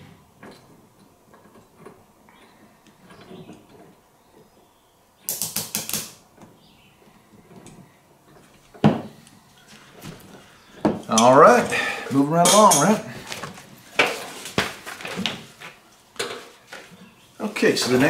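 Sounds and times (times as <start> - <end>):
handling noise: 5.8 - 18.0.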